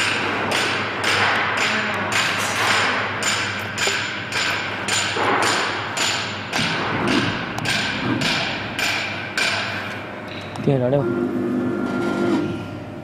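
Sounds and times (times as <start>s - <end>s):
spindle high whine: 9.9s - 13.0s.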